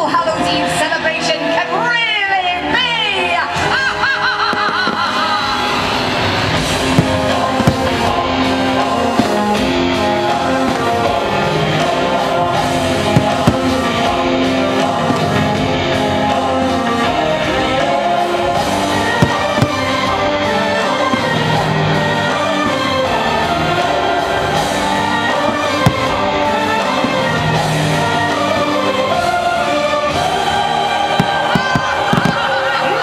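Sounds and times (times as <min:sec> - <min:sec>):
music with singing: 0:00.0 - 0:33.0
firework bangs: 0:04.4 - 0:15.6, 0:18.7 - 0:28.7, 0:31.2 - 0:32.7.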